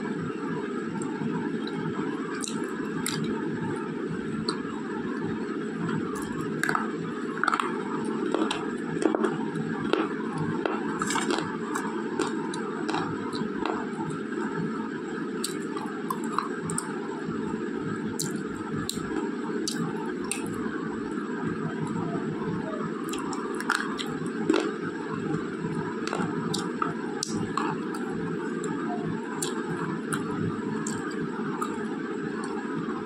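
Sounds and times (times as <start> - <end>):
chewing with sharp crunching: 1.6 - 3.6, 4.3 - 14.2, 18.2 - 20.7, 23.0 - 32.6.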